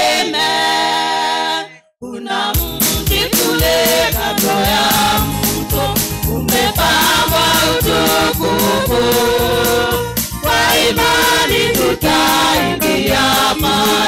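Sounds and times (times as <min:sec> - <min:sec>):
choir singing gospel: 0:00.0 - 0:14.0
steady beat: 0:02.6 - 0:14.0.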